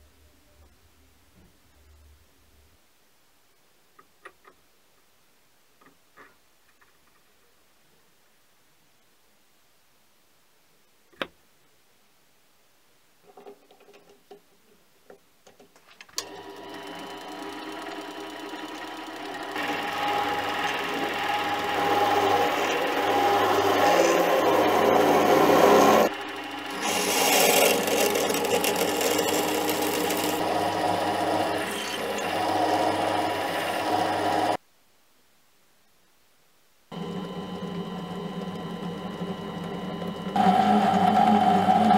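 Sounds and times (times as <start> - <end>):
lathe motor hum: 16.2 - 34.6, 37.0 - 41.9
gear whine: 18.1 - 34.6
drill scraping into steel: 19.6 - 26.1, 26.7 - 34.6.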